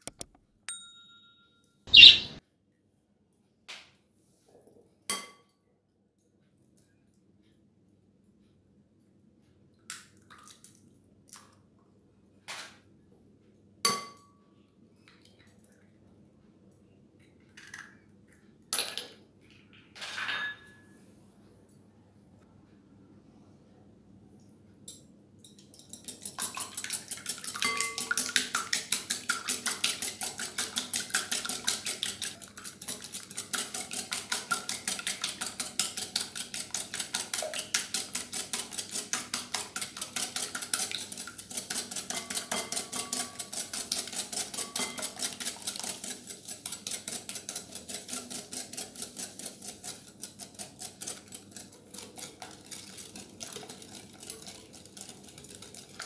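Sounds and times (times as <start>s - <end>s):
whisk beating eggs in glass bowl: 25.9s - 56.0s.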